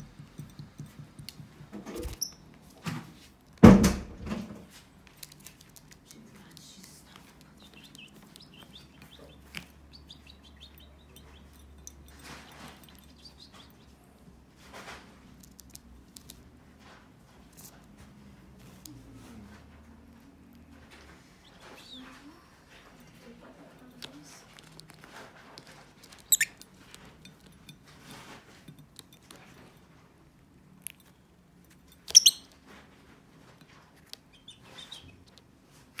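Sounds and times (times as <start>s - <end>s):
lovebirds twittering: 7.5s - 14.0s, 21.4s - 22.2s, 26.2s - 26.6s, 32.1s - 32.5s.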